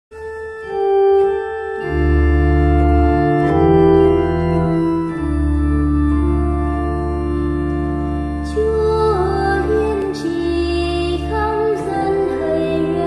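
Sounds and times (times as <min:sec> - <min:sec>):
organ playing hymn introduction: 0:00.2 - 0:13.0.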